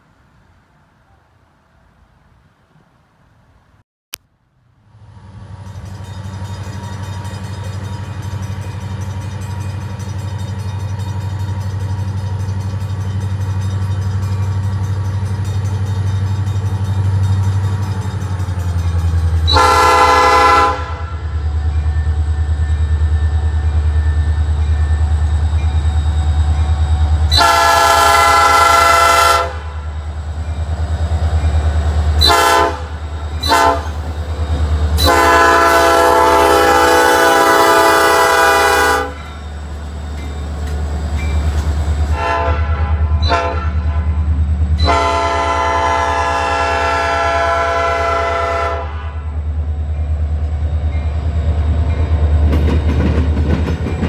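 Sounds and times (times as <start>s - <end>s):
diesel locomotive engine drone: 0.0s - 54.0s
locomotive air horn: 19.4s - 21.4s, 27.3s - 29.9s, 32.2s - 34.0s, 35.0s - 39.4s, 42.1s - 44.2s, 44.8s - 49.4s.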